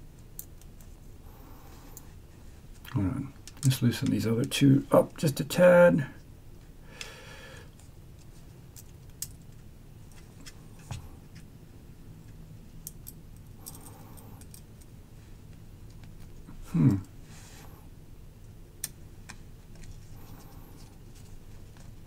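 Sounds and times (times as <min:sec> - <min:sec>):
low steady hum: 0:00.0 - 0:22.0
small metal clicks and rubbing: 0:08.2 - 0:11.5, 0:12.8 - 0:14.9.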